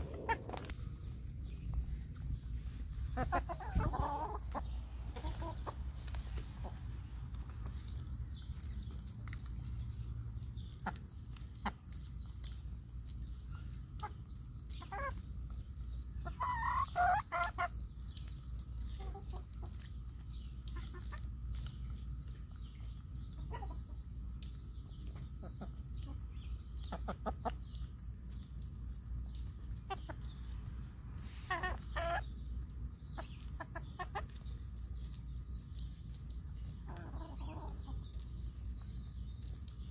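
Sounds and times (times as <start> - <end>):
chickens clucking: 0.0 - 0.7, 2.6 - 9.5, 10.6 - 12.6, 13.2 - 28.4, 29.2 - 35.1, 36.6 - 38.8
low steady rumble: 0.0 - 16.5.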